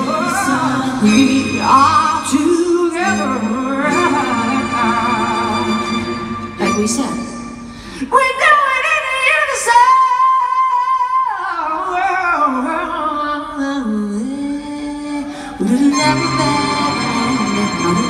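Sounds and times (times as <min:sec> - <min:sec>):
fuller musical accompaniment: 0:00.0 - 0:18.0
woman singing wordless melody: 0:08.0 - 0:18.0.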